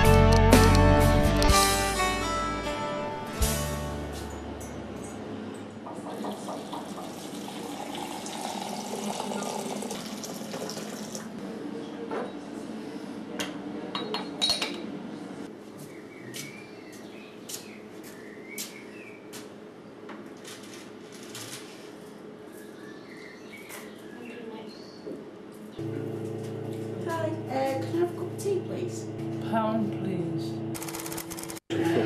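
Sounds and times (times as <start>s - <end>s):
water running: 5.9s - 11.4s.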